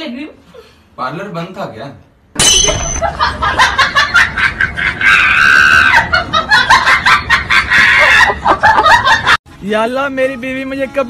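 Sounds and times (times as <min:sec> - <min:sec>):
shrill scream: 0:05.0 - 0:06.1.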